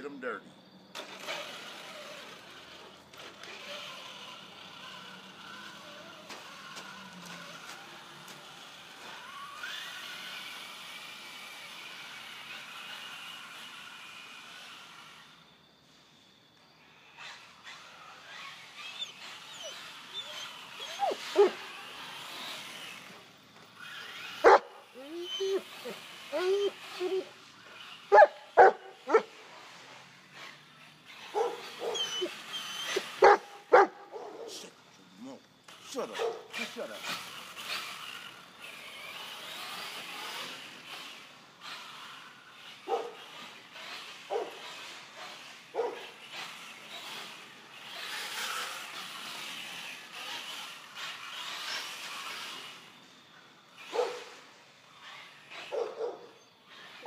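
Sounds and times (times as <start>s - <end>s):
toy truck motor whine: 0.0s - 57.0s
dog barking: 24.4s - 24.7s, 28.1s - 29.3s, 31.3s - 32.1s, 33.2s - 34.6s, 36.2s - 36.5s, 42.9s - 43.2s, 44.3s - 44.6s, 45.8s - 46.0s, 53.9s - 54.3s, 55.7s - 56.4s.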